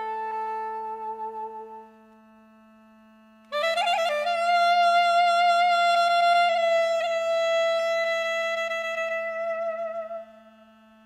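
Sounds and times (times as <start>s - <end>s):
reed woodwind long note: 0.0s - 2.8s, 3.5s - 11.0s.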